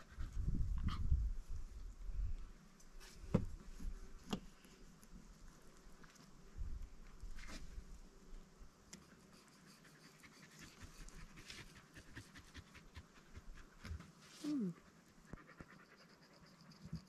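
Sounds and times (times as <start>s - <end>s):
dog panting: 9.3s - 17.0s
dog whining: 14.4s - 14.8s.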